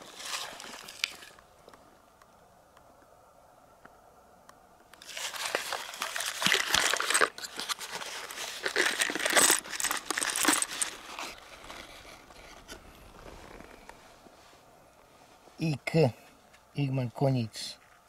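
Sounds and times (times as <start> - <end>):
metal cartridges clinking and rattling: 5.0 - 11.4
cardboard rustling: 5.0 - 14.0.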